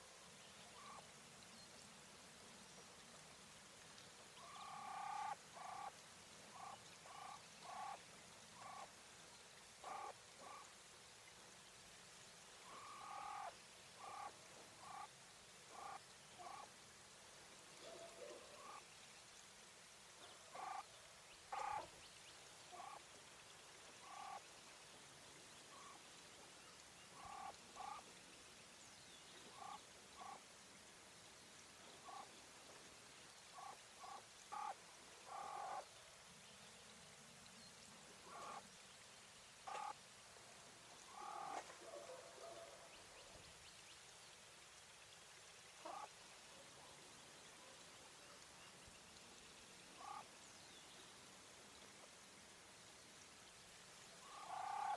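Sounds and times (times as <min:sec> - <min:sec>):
quail hen calling: 0:04.4 - 0:05.9, 0:06.6 - 0:08.0, 0:08.6 - 0:08.9, 0:09.8 - 0:10.6, 0:12.7 - 0:15.1, 0:15.7 - 0:16.7, 0:20.5 - 0:20.8, 0:21.5 - 0:21.9, 0:22.8 - 0:23.0, 0:24.0 - 0:24.4, 0:27.2 - 0:28.0, 0:29.6 - 0:30.4, 0:33.6 - 0:35.8, 0:38.3 - 0:38.6, 0:39.7 - 0:40.0, 0:41.1 - 0:41.7, 0:45.8 - 0:46.1, 0:50.0 - 0:50.2, 0:54.2 - 0:54.9.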